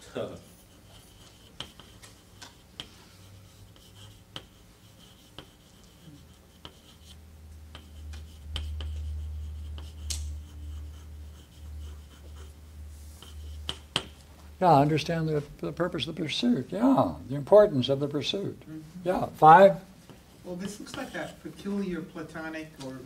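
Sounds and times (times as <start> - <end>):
low hum: 7.3 - 17.4.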